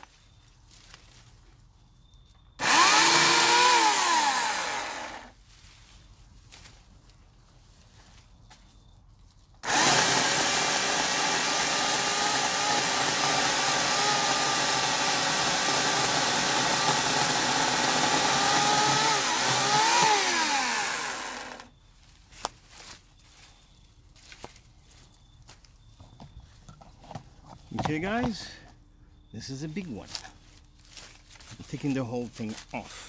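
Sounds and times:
electric chainsaw cutting brush: 2.6 - 5.4, 9.6 - 21.7.

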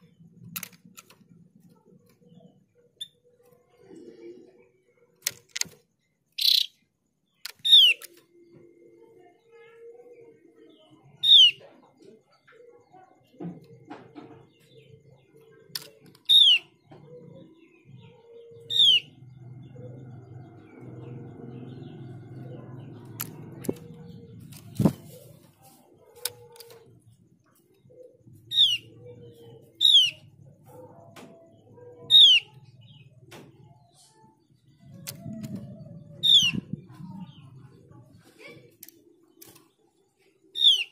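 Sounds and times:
bird calls: 0.0 - 40.9
wing flutters: 23.0 - 26.9.

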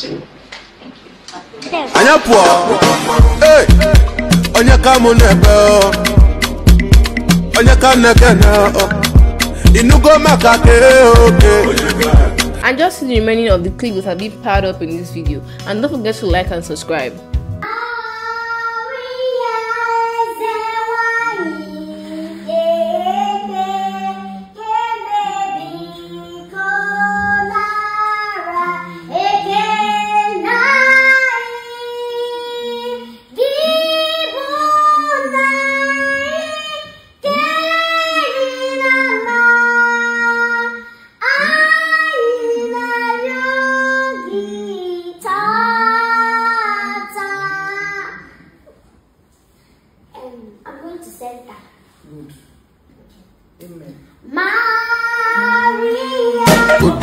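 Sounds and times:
girl singing: 17.6 - 48.6, 54.2 - 57.0.

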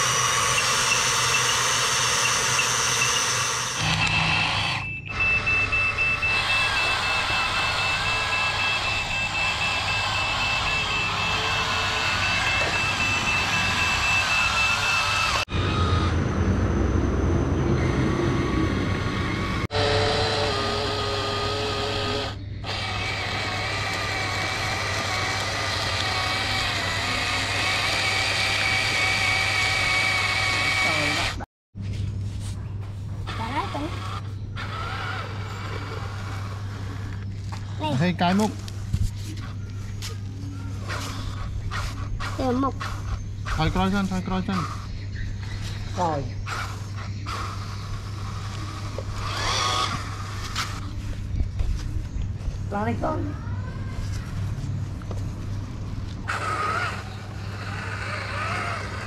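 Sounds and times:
toy motor whine: 0.0 - 16.2, 18.4 - 31.4, 33.3 - 38.5, 39.3 - 50.9, 56.2 - 59.0
high reversing beeps: 0.3 - 19.6.

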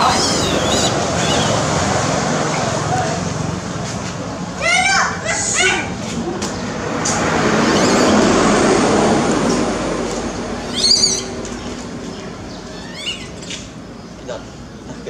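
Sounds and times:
baby monkey squealing cry: 0.0 - 1.9, 7.6 - 8.5, 10.6 - 11.4, 12.6 - 13.7.

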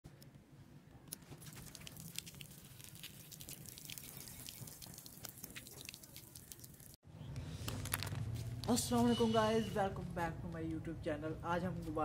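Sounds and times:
water dripping on concrete: 1.6 - 7.0.

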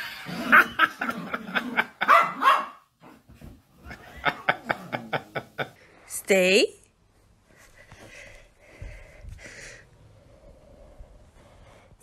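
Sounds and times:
small dogs barking and yapping: 2.0 - 3.2.

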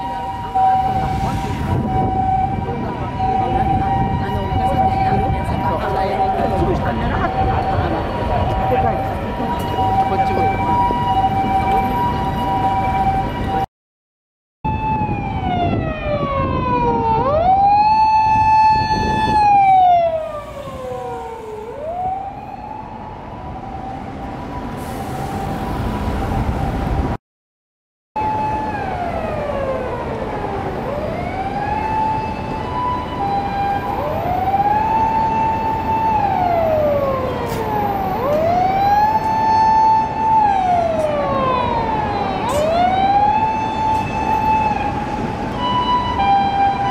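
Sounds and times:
city traffic: 0.0 - 13.7, 14.7 - 27.2, 28.2 - 46.9
fire engine wailing siren: 0.0 - 13.7, 14.7 - 27.2, 28.2 - 46.9
two-tone hi-lo siren: 0.0 - 13.7, 14.7 - 27.2, 28.2 - 46.9.

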